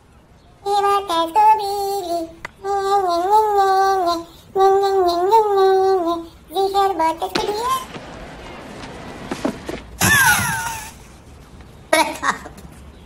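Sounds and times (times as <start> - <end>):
high voice singing na na na: 0.6 - 7.9.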